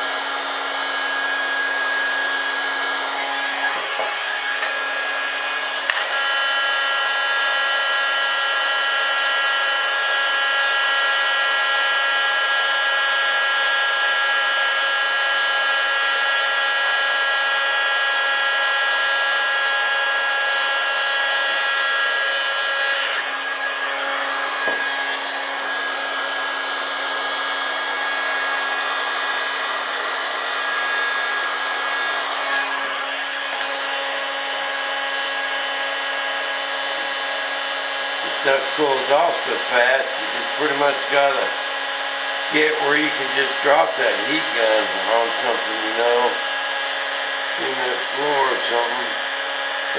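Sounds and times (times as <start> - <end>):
heat gun blowing: 0.0 - 49.9.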